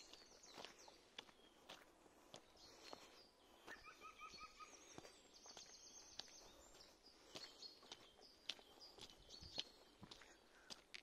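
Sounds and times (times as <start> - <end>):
whistled birdsong notes: 0.0 - 10.9
soft footsteps on path: 0.0 - 11.0
high bird chirps: 3.6 - 10.3.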